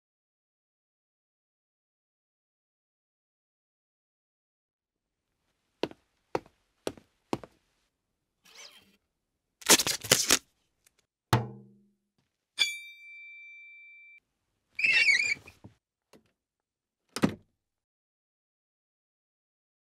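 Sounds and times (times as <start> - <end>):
thunk with low ringing: 11.4 - 11.7.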